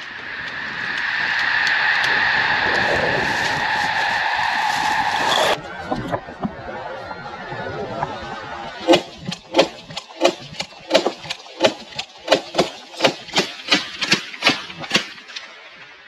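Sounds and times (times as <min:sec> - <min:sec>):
shotgun blasts: 0:08.9 - 0:15.4.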